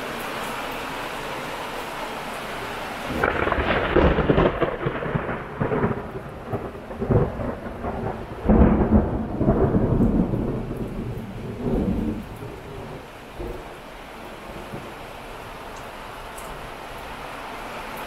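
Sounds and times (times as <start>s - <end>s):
steady rain: 0.0s - 18.0s
thunder rolling: 3.1s - 13.6s.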